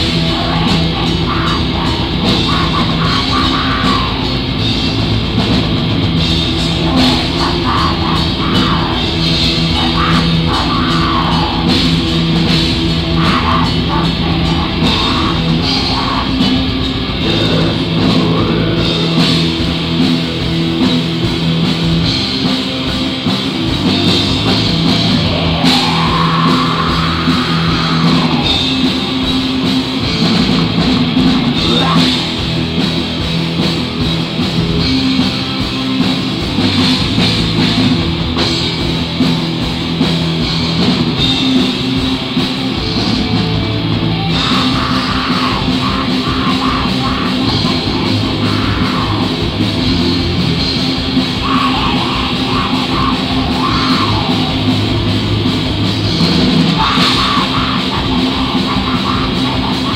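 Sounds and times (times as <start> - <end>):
vocalist on microphone: 0.0 - 4.8, 6.4 - 20.0, 24.4 - 32.6, 44.2 - 55.3, 56.0 - 59.9
metal band playing live: 0.0 - 59.9.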